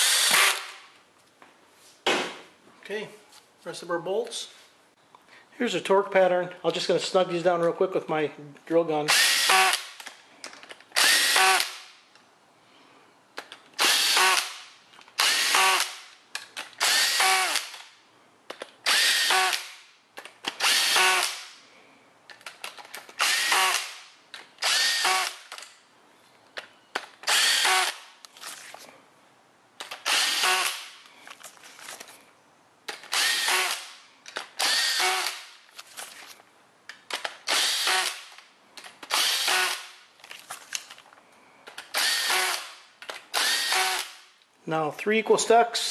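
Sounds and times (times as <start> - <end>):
cordless drill whirring: 0.0 - 0.8, 9.1 - 10.0, 11.0 - 11.8, 13.8 - 14.6, 15.2 - 16.1, 16.8 - 17.8, 18.8 - 19.8, 20.5 - 21.5, 23.1 - 24.0, 24.6 - 25.6, 27.2 - 28.0, 29.9 - 31.2, 33.0 - 35.5, 37.4 - 38.4, 39.1 - 39.9, 41.8 - 44.2.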